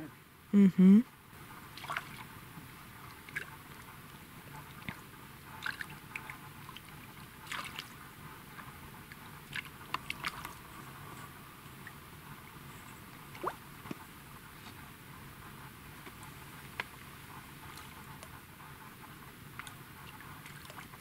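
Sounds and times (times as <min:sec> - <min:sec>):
small fish splashing: 0:01.7 - 0:02.2, 0:05.6 - 0:08.0.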